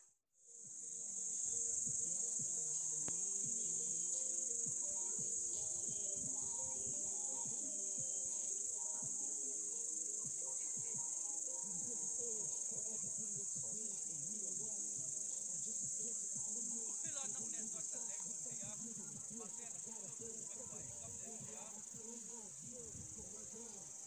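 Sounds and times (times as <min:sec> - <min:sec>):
high-pitched insect chorus: 0:00.5 - 0:24.0.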